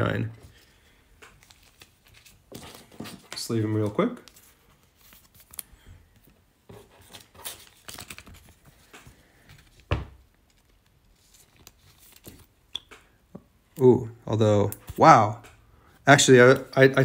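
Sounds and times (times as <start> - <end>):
cards sliding into plastic sleeves: 0.4 - 13.1.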